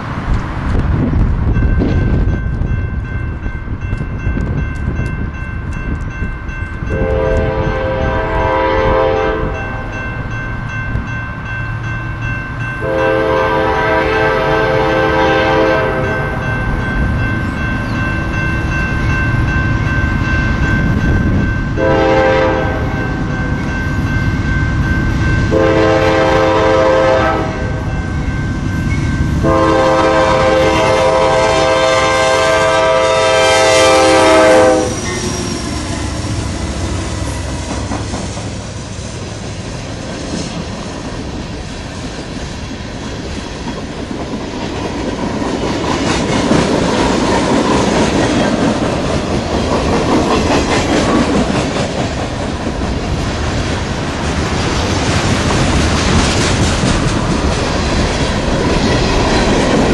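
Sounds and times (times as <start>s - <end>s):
train engine and wheels rumbling: 0.0s - 59.9s
locomotive air horn blasts: 6.9s - 9.8s, 12.8s - 16.5s, 21.8s - 23.2s, 25.5s - 27.9s, 29.4s - 35.6s.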